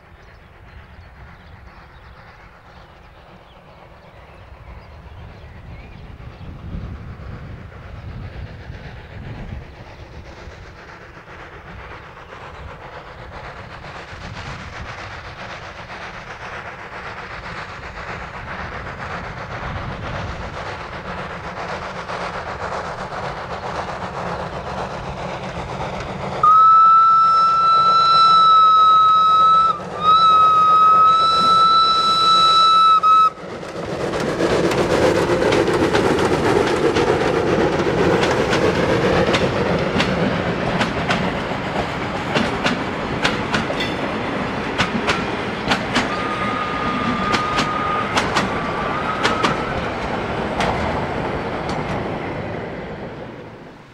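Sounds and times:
steam locomotive running: 0.0 - 53.9
steam whistle blasts: 26.4 - 33.4, 46.1 - 49.7.

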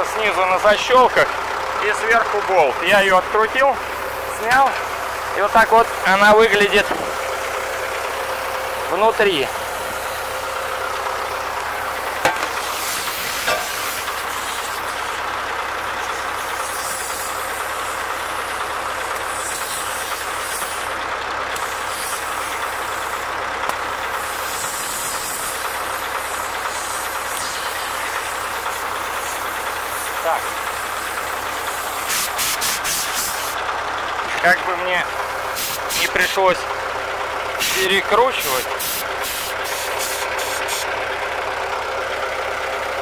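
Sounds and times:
engine running: 0.0 - 43.0
compressed air hissing from blow gun: 9.6 - 10.4, 11.7 - 15.2, 15.8 - 21.0, 21.6 - 23.3, 24.0 - 33.6, 35.2 - 36.2, 37.6 - 40.9.

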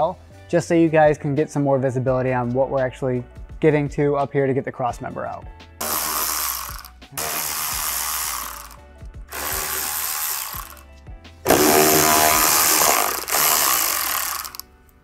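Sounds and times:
electric ratchet spinning bolts: 5.8 - 10.9, 11.5 - 14.6.

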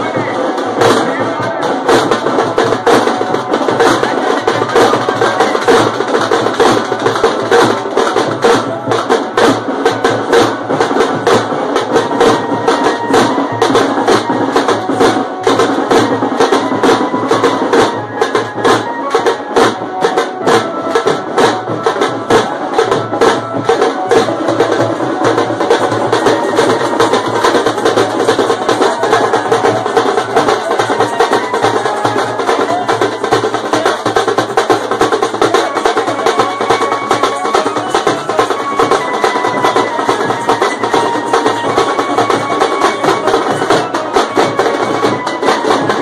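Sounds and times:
drum band drumming: 0.0 - 46.0.

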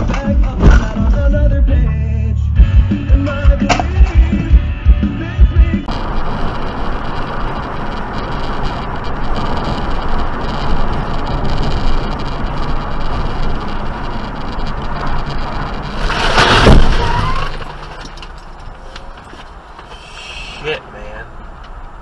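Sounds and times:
car crash: 0.0 - 1.6, 5.8 - 20.6
car road and engine noise: 0.0 - 22.0.

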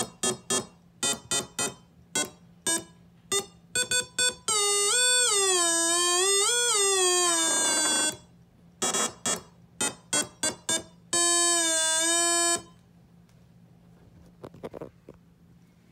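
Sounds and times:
electronic tone from small speaker: 0.3 - 12.8.

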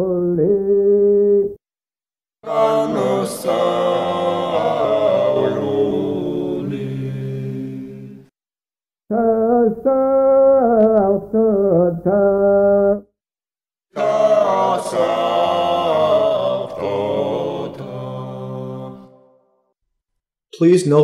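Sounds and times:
male choir chanting: 2.4 - 8.2, 14.0 - 19.3.

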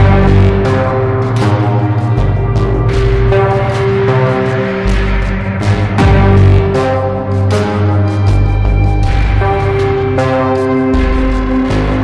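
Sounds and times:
dark ambient synthesizer music: 0.0 - 12.0.

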